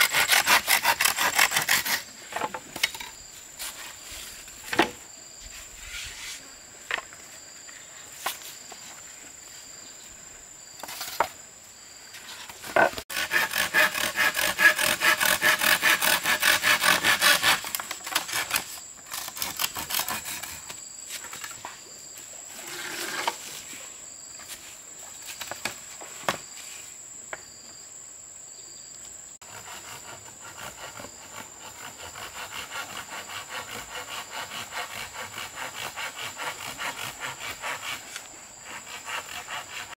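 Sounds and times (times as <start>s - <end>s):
hand saw cutting wood: 0.0s - 2.6s, 12.7s - 20.8s, 22.6s - 23.4s, 29.4s - 39.9s.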